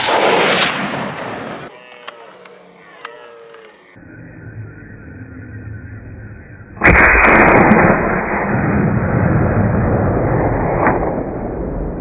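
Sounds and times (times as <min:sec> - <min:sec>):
rifle shot: 0:00.0 - 0:01.7, 0:06.8 - 0:11.7.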